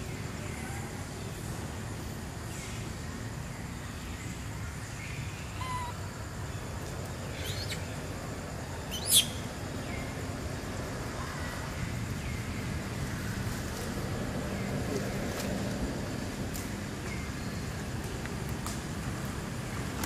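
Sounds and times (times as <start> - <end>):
faint chirps: 2.5 - 10.2.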